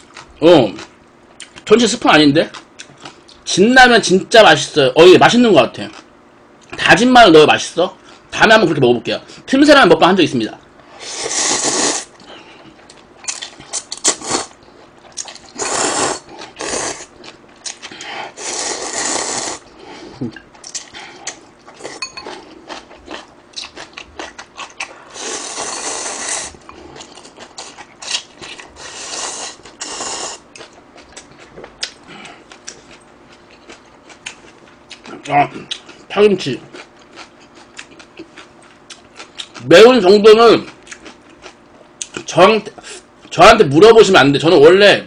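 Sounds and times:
person slurping noodles: 11.0s - 12.1s, 14.0s - 14.5s, 15.6s - 17.1s, 18.3s - 19.6s, 25.0s - 26.6s, 28.8s - 30.4s
chewing: 12.2s - 19.4s, 20.1s - 36.1s, 36.7s - 39.6s, 40.7s - 42.2s.

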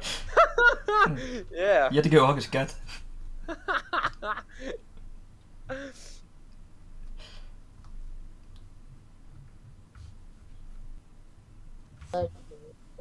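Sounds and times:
breathy exhalations: 5.7s - 6.2s.

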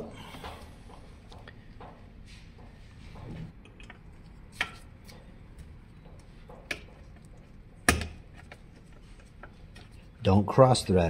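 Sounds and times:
sharp clicks and knocks: 2.6s - 10.0s.

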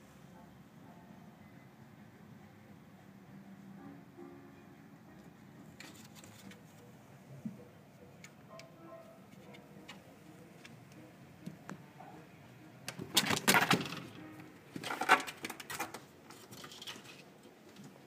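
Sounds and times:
kitten rattling and scraping: 14.8s - 17.5s.

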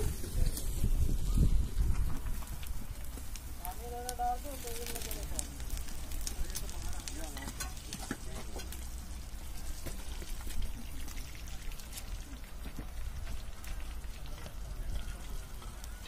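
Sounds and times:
thermite burning with crackle: 0.0s - 16.0s.

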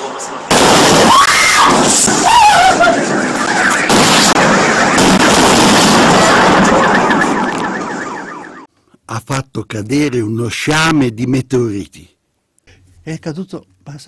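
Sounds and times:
loud blast with sharp cracks: 0.5s - 8.2s.

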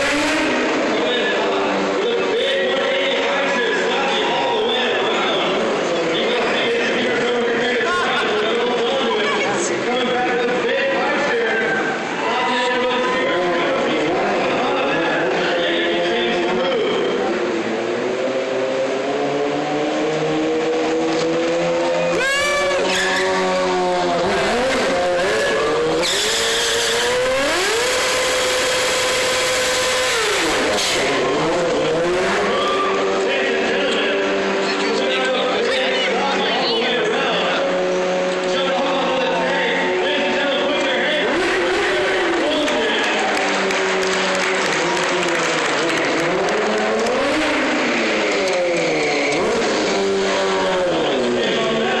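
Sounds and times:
motorcycle engine revving: 0.0s - 2.0s, 17.2s - 35.1s, 41.2s - 52.0s.

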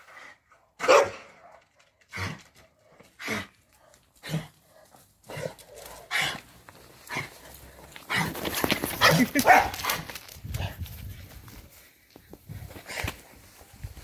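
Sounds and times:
dog barking: 0.8s - 1.7s, 9.0s - 9.8s.

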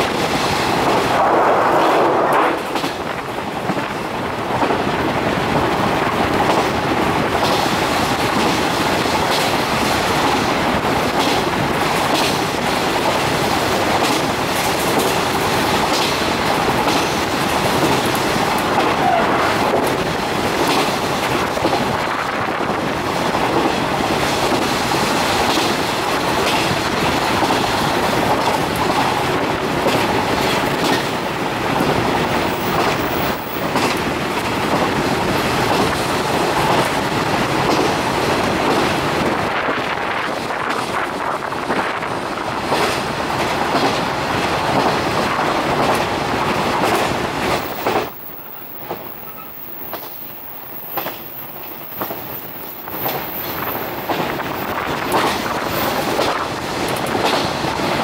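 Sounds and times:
clickety-clack of rail joints: 0.0s - 58.0s
train wheels running on track: 0.0s - 58.0s.

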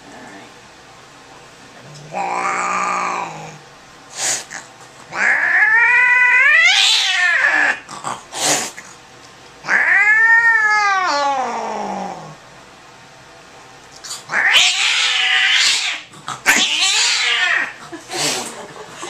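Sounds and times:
cat hissing: 2.0s - 8.8s, 9.6s - 12.4s, 14.0s - 18.5s
cat yowling: 2.1s - 3.6s, 5.1s - 7.9s, 9.6s - 12.4s, 14.3s - 17.8s.

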